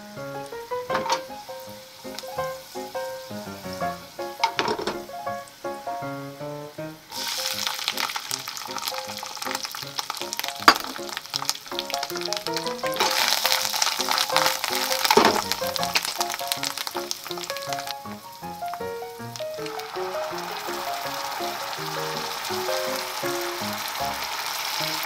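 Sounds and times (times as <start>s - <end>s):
greens sizzling in hot oil: 0.0s - 25.0s.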